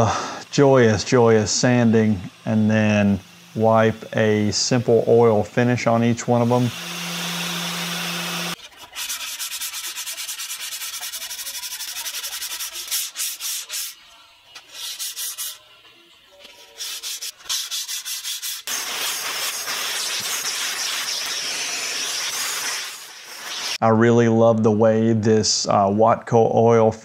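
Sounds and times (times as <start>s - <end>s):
shop vacuum hissing: 0.0s - 15.8s, 18.6s - 23.8s
hand sanding wooden board: 0.5s - 14.0s, 14.6s - 15.6s, 16.5s - 23.8s.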